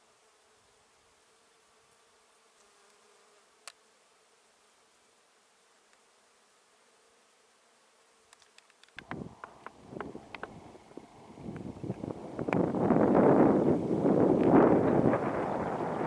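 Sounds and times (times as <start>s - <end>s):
bees buzzing: 0.0s - 16.0s
sharp click: 8.3s - 10.5s.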